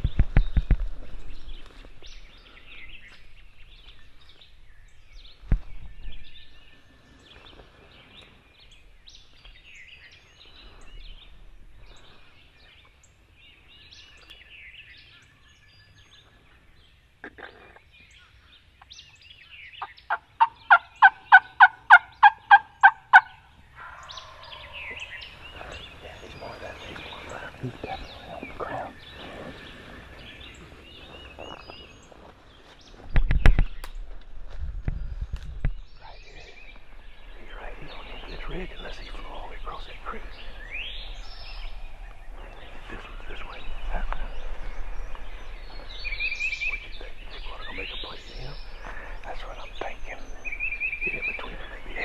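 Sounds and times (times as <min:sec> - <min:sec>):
faint songbird chirps: 0:00.0 - 0:52.0
turkey yelping: 0:20.1 - 0:25.4
turkey rattling call: 0:20.1 - 0:28.1.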